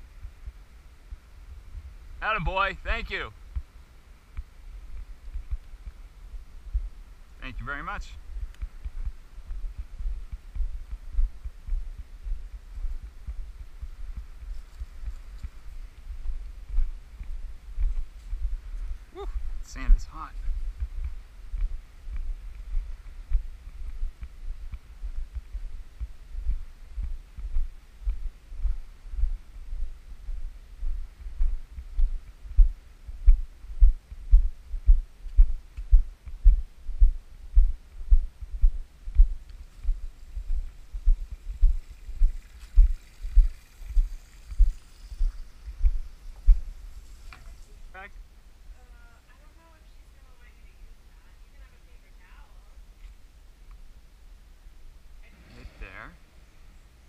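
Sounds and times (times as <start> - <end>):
footsteps on sand: 4.3 - 7.0, 8.2 - 47.9.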